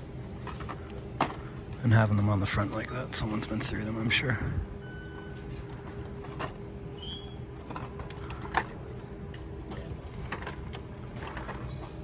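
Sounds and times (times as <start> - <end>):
low machinery hum: 0.0 - 12.0.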